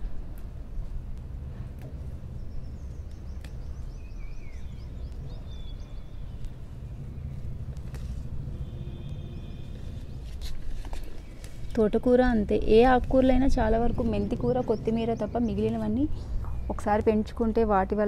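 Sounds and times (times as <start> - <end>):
steady low rumble: 0.0 - 18.0
stems snapping: 3.0 - 3.8, 7.7 - 8.3.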